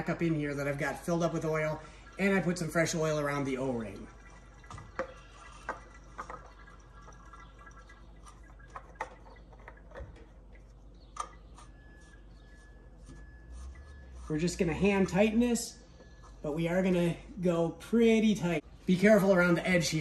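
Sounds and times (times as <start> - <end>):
oil dripping into pan: 0.1 - 11.9.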